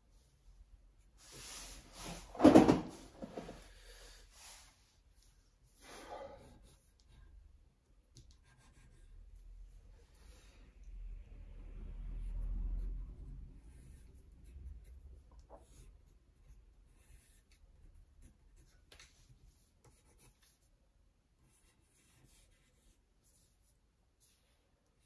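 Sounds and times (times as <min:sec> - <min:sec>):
pencil scratching on paper: 0:05.9 - 0:07.4, 0:08.1 - 0:09.5, 0:12.2 - 0:20.7, 0:21.4 - 0:25.0.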